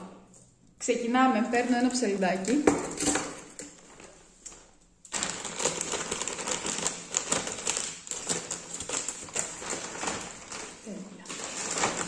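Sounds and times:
plastic bag crinkling and rustling: 1.8s - 12.0s
scissors cutting plastic: 4.5s - 12.0s.

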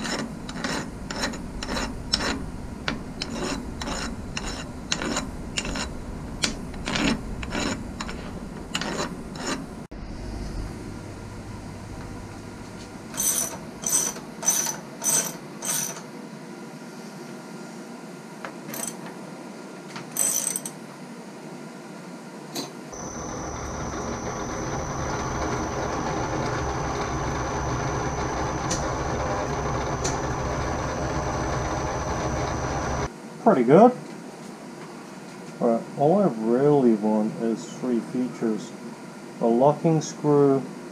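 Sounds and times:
milling machine spindle whine: 0.0s - 10.3s, 11.0s - 15.9s, 23.0s - 33.1s.

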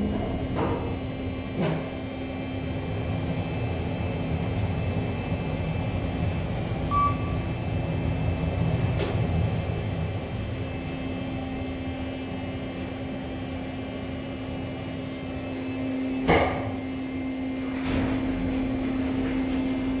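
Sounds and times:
elevator drive hum: 0.0s - 20.0s
elevator ride rumble: 0.0s - 20.0s
short beep: 6.9s - 7.4s.

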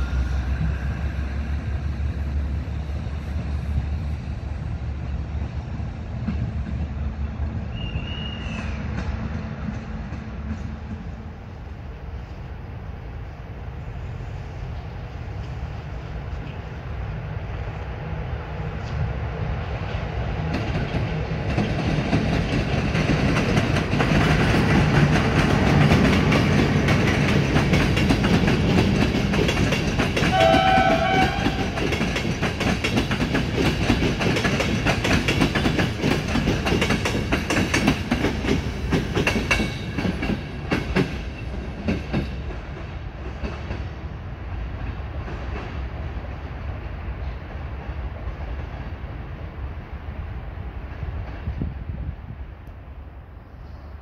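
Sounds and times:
train rumbling past: 0.0s - 54.0s
wheels clicking over rail joints: 20.4s - 44.1s
train horn blast: 30.3s - 31.9s.

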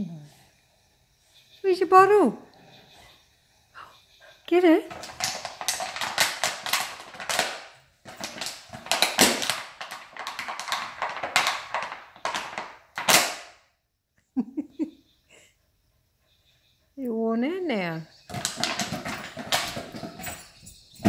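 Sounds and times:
dog chewing plastic bottle: 4.9s - 13.5s, 18.3s - 20.5s.

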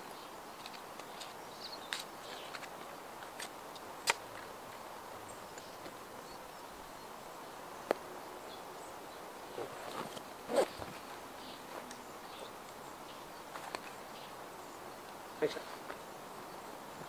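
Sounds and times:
quiet woodland background: 0.0s - 17.0s.

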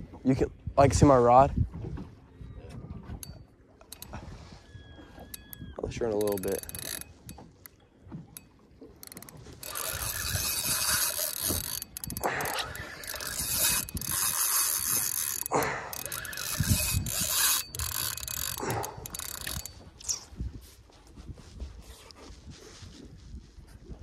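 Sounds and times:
fishing reel drag clicking: 3.2s - 20.2s.

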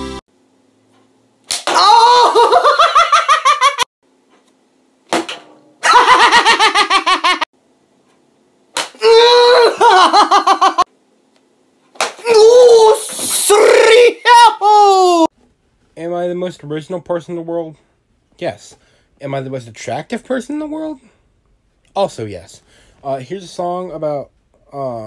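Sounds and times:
man laughing hard: 2.0s - 3.9s, 5.8s - 7.5s, 9.5s - 10.9s.

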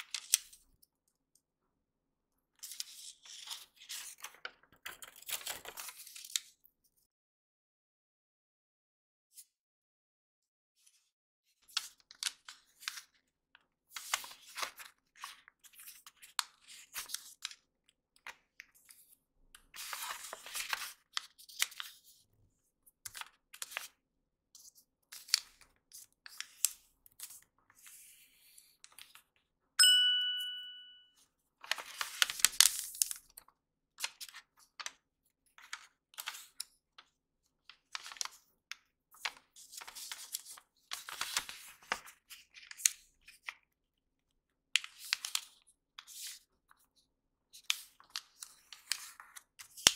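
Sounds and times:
clear ding: 29.8s - 31.1s.

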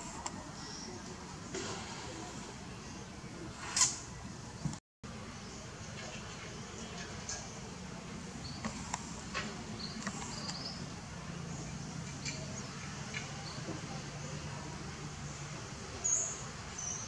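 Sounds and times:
faint clicks: 8.6s - 10.7s.

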